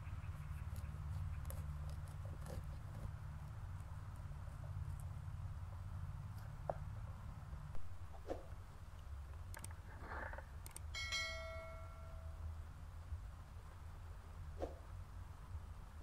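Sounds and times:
low outdoor rumble: 0.0 - 16.0
bell ding: 11.0 - 12.4.

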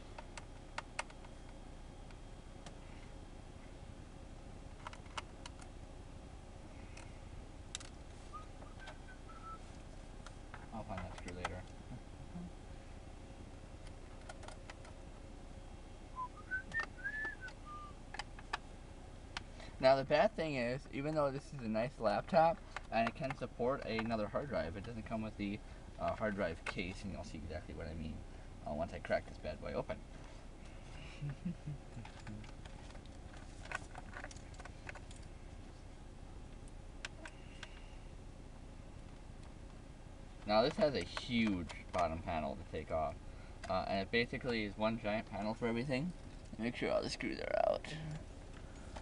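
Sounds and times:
person whistling: 8.3 - 9.6, 16.2 - 18.0.

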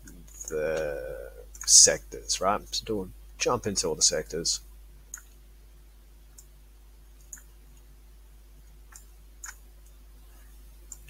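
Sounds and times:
faint steady hum: 0.0 - 11.0
computer mouse clicks: 5.1 - 5.4, 7.2 - 7.9, 8.6 - 10.0.

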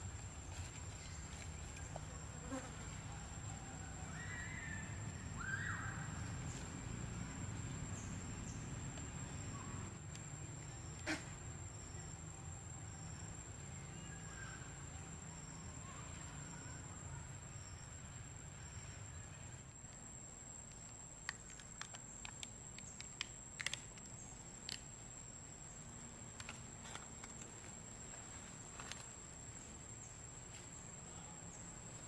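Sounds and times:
insect chirping: 0.0 - 32.0
sharp clicks and crackles: 20.7 - 24.9.

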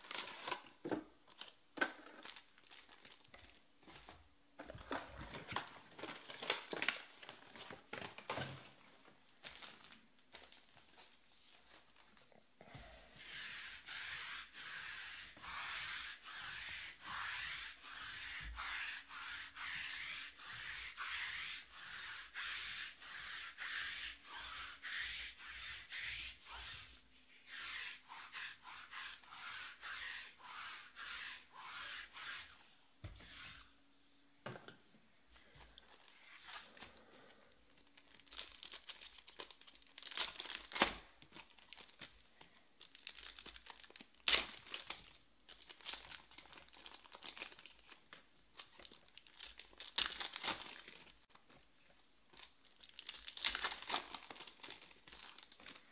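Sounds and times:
foil packs crinkling: 1.3 - 3.6, 5.3 - 8.7, 9.4 - 11.1, 37.8 - 48.0, 48.6 - 51.2, 52.3 - 55.9.

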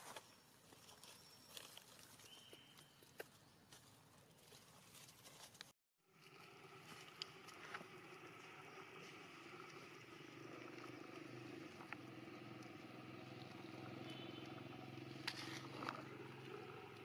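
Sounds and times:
faint engine drone: 6.1 - 17.0.

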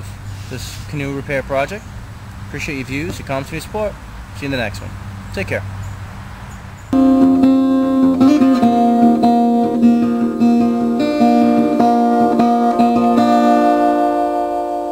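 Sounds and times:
acoustic guitar music: 7.0 - 14.9.

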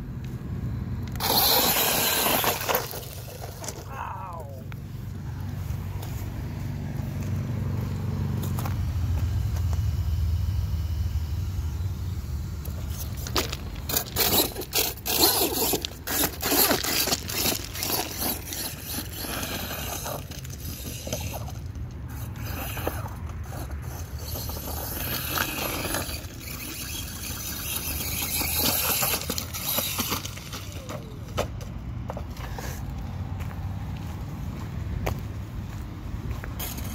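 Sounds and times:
tires scraping gravel: 0.0 - 10.2, 12.0 - 36.9
electric motor whining: 1.0 - 3.6, 7.8 - 30.8.

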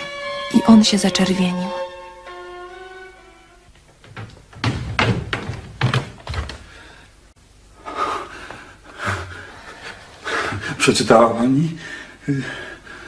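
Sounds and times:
string music: 0.0 - 3.8
wooden thuds and knocks: 3.9 - 6.8.

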